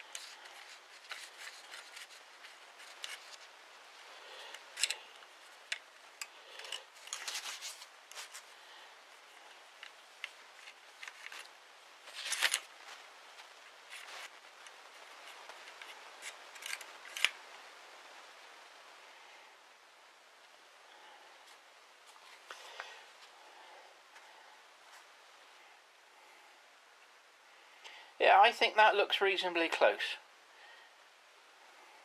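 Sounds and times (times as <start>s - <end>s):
metal ramrod scraping and clicking: 4.5s - 5.0s.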